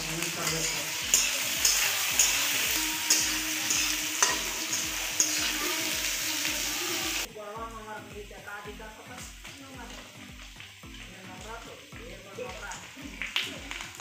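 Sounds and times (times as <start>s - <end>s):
metal spatula scraping pan: 0.0s - 7.3s
onions sizzling in hot oil: 0.0s - 14.0s.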